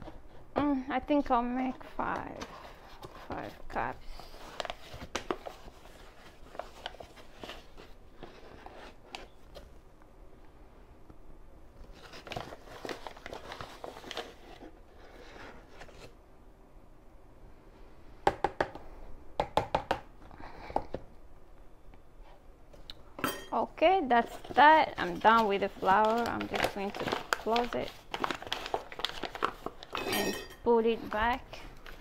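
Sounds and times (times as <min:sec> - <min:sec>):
paper bag crinkling: 0:24.2 - 0:30.1.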